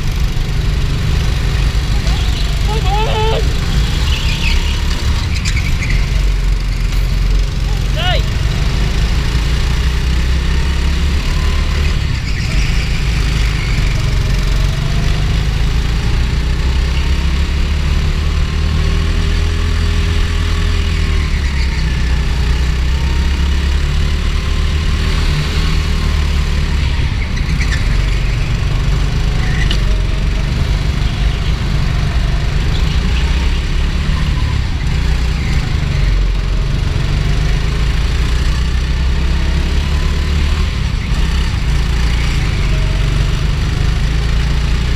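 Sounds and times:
go-kart engine running: 0:00.0 - 0:44.9.

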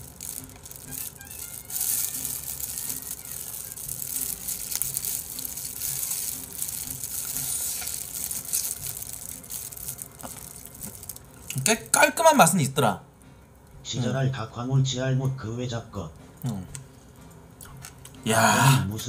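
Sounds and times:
crunchy fried chicken chewing: 0:00.0 - 0:11.8.

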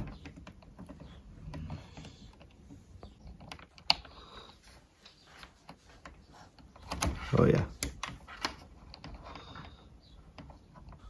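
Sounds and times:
probes and wires clicking: 0:00.0 - 0:11.0.

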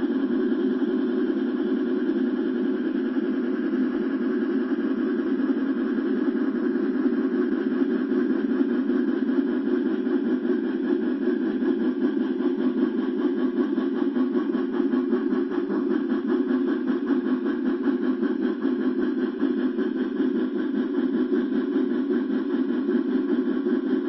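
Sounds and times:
model train running on track: 0:10.0 - 0:24.0.

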